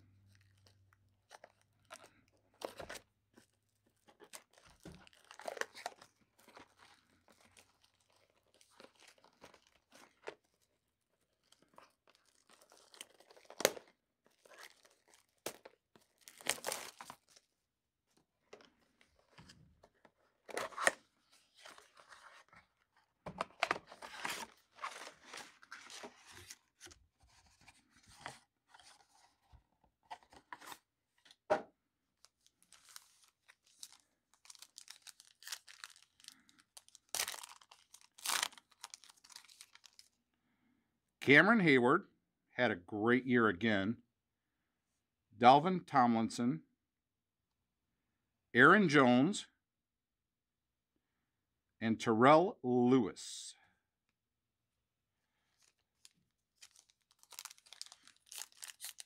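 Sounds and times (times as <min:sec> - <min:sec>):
wrappers crinkling and tearing: 0:04.2 - 0:17.4, 0:32.2 - 0:40.1, 0:55.6 - 0:59.0
foil pack ripped open: 0:14.6 - 0:17.2, 0:33.7 - 0:40.0, 0:56.6 - 0:59.0.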